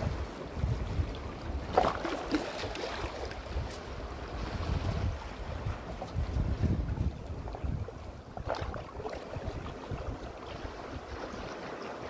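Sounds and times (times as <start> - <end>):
wind buffeting microphone: 0.0 - 2.2, 2.8 - 11.7
waves splashing on rocks: 1.6 - 3.8.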